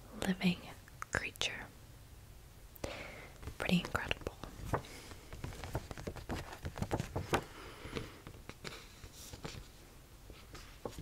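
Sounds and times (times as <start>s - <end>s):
paper card tapping and clicking: 4.7s - 8.8s.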